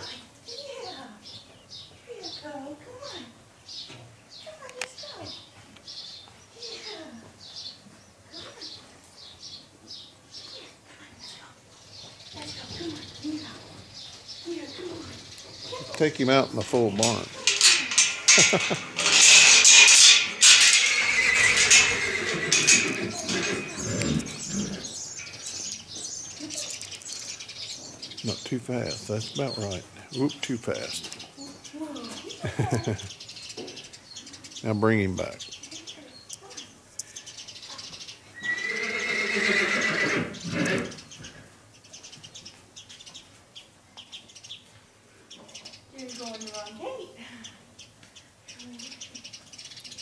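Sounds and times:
mule foal whinnying: 0:20.6 - 0:25.0, 0:38.4 - 0:41.0.

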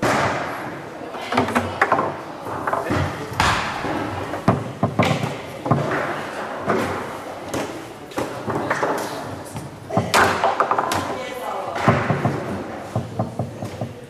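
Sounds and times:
foosball knocks and clacks: 0:01.3 - 0:06.1, 0:07.6 - 0:11.2, 0:11.8 - 0:14.0.

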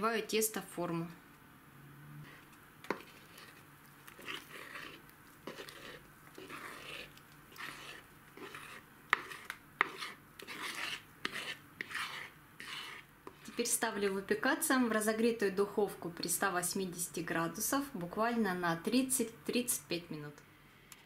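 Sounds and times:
spoon scraping cake batter: 0:02.2 - 0:14.4.

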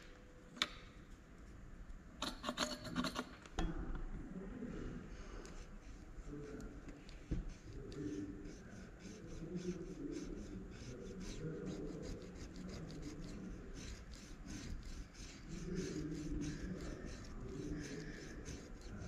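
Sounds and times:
cotton swab rubbing on glass: 0:05.5 - 0:19.0.

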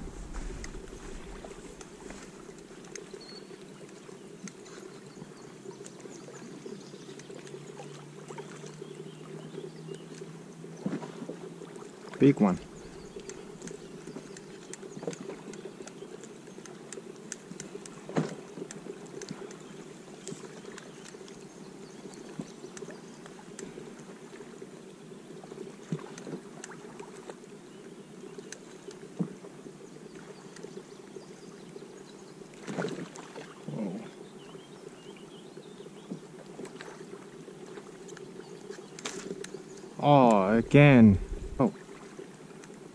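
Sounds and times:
water lapping against kayak hull: 0:00.0 - 0:03.2.

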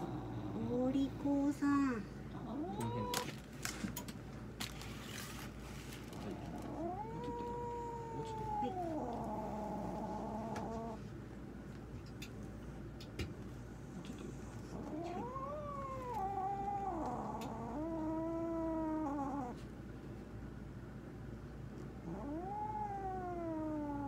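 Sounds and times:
cat yowling: 0:02.4 - 0:03.3, 0:06.6 - 0:11.0, 0:14.8 - 0:19.6, 0:22.0 - 0:24.0.

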